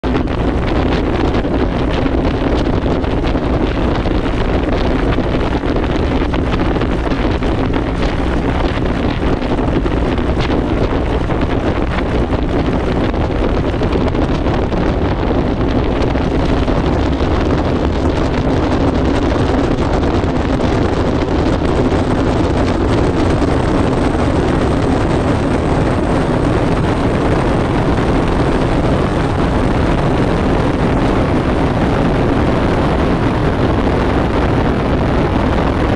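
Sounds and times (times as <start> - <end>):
piston aircraft engine running: 0.0 - 35.9
wind noise on microphone: 0.0 - 35.9.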